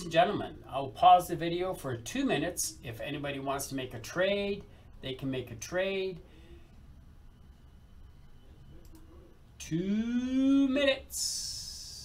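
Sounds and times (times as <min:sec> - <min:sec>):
low steady hum: 0:00.0 - 0:12.0
faint hiss: 0:05.7 - 0:12.0.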